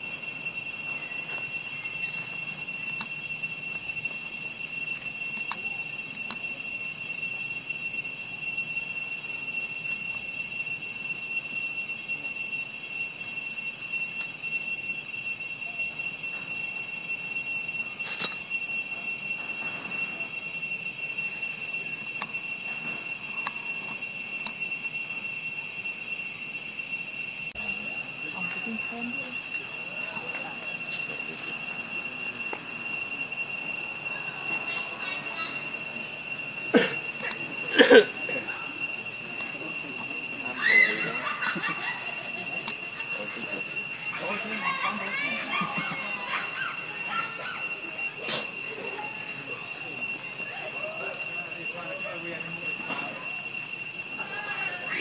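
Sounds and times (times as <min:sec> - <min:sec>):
lower steady insect tone: 0:00.0 - 0:55.0
shrill insect buzz: 0:00.0 - 0:55.0.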